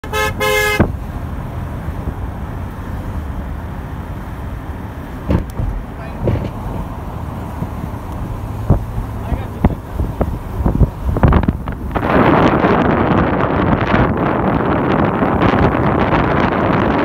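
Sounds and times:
vehicle horn honks: 0.0 - 0.9
highway traffic rumble: 0.0 - 17.0.

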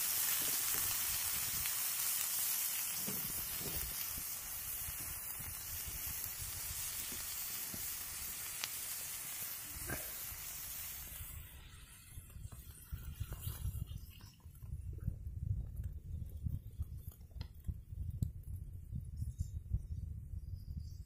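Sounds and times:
fire crackling: 0.0 - 19.9
pot simmering with hiss: 0.0 - 21.0.

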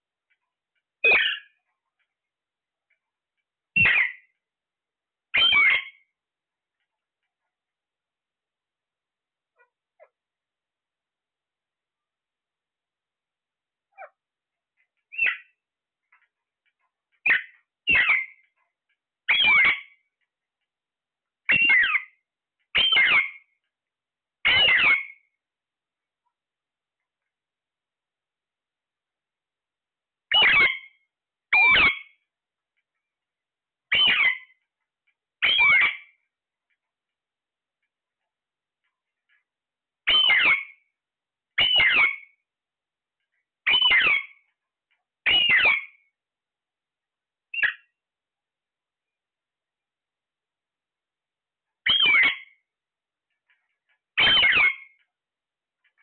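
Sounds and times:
parakeets squawking: 3.8 - 4.2, 5.4 - 6.0, 17.3 - 18.4, 19.3 - 19.8, 21.5 - 22.0, 22.8 - 23.4, 24.5 - 25.1, 30.3 - 30.8, 33.9 - 34.5, 35.4 - 36.0, 40.1 - 40.7, 41.6 - 42.2, 43.7 - 44.3, 45.3 - 45.9, 51.9 - 52.4, 54.2 - 54.9.

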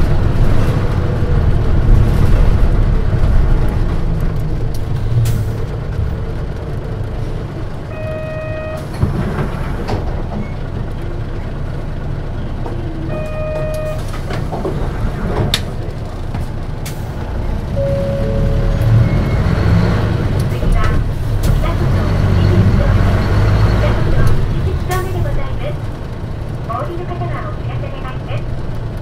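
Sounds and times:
bus engine rumble: 0.0 - 29.0
short electronic beeps: 13.1 - 14.0, 17.8 - 19.6
low steady tone: 17.8 - 19.2.

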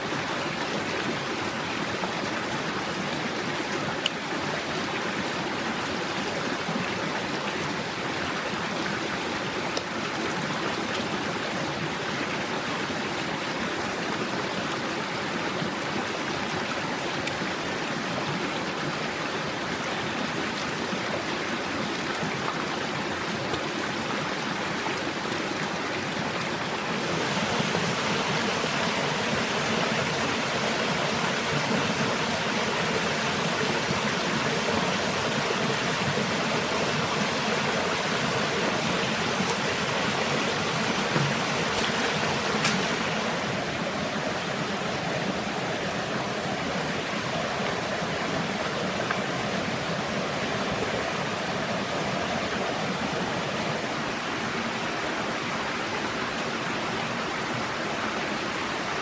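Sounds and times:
stream running over rocks: 0.0 - 59.0.

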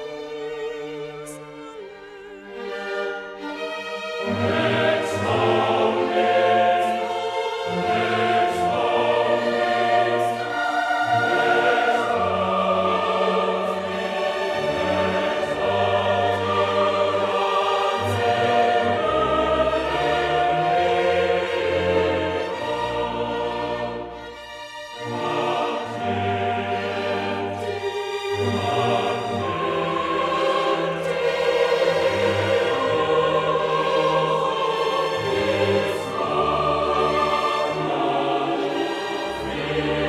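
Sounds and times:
choir singing held notes: 2.5 - 40.0.

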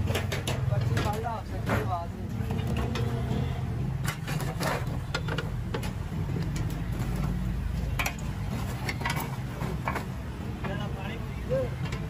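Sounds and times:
metal scoop scraping charcoal: 1.5 - 6.0.

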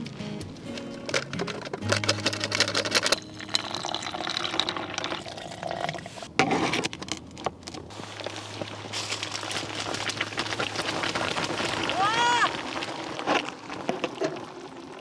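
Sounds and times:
water pouring into container: 3.4 - 6.3, 7.9 - 15.0.

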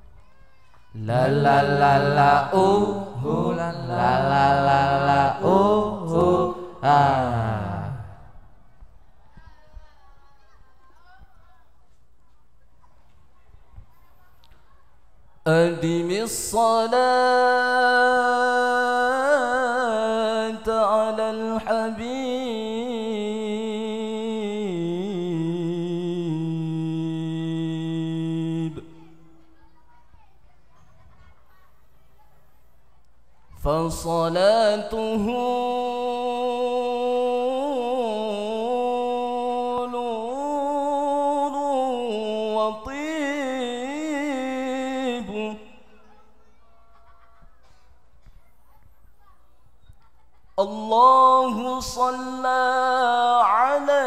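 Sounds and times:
man singing unaccompanied: 1.0 - 8.3, 15.5 - 29.0, 33.6 - 46.0, 50.6 - 54.0
man chanting a cappella: 1.0 - 8.4, 15.5 - 29.1, 33.6 - 45.9, 50.6 - 54.0.

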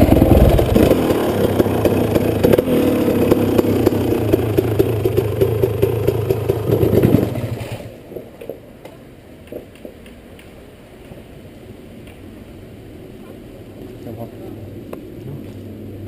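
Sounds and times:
dirt bike engine idling: 0.0 - 8.7.

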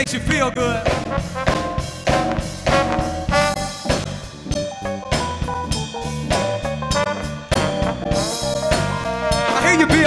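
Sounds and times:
drum kit beat: 0.0 - 10.0
live band playing: 0.0 - 10.0
brass horns: 0.8 - 4.2, 6.8 - 10.0.

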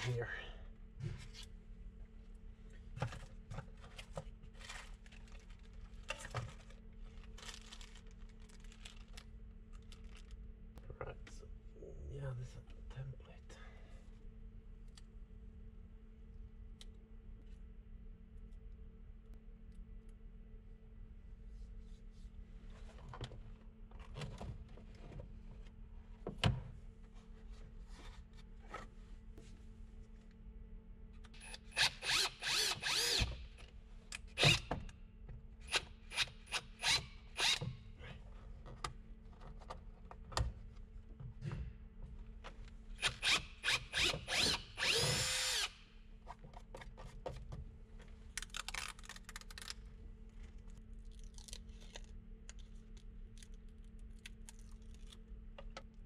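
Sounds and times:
power drill running: 31.7 - 33.4, 43.0 - 45.8.

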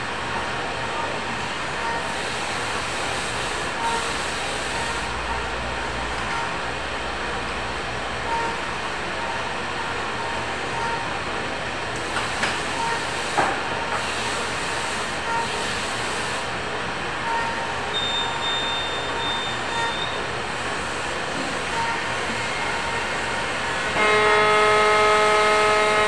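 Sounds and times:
short beeps: 17.3 - 20.2
machinery droning: 19.0 - 26.0.

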